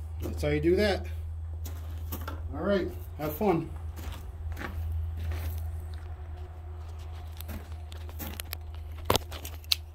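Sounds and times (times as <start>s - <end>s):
steady low hum: 0.0s - 9.9s
footsteps on gravel: 1.6s - 9.7s.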